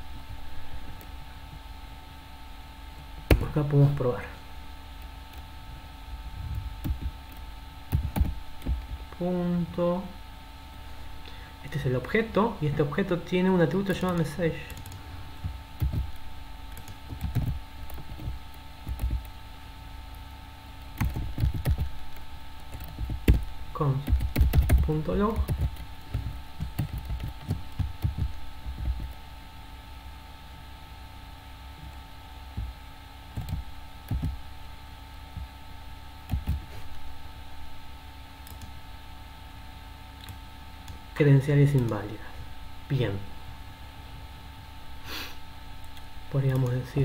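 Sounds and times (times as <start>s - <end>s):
faint steady hum: 0.0s - 47.0s
keyboard typing: 6.5s - 9.0s, 13.8s - 19.4s, 20.8s - 29.2s, 33.3s - 34.4s, 36.3s - 36.7s, 38.4s - 38.8s, 40.2s - 41.0s.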